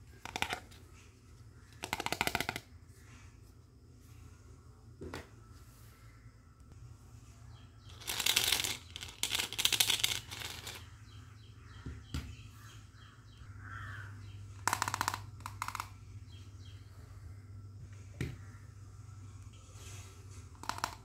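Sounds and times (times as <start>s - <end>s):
toy basket rattling: 0.2s - 0.7s, 1.8s - 2.7s, 7.9s - 10.9s, 14.6s - 16.0s, 20.5s - 21.0s
low steady hum: 15.9s - 20.6s.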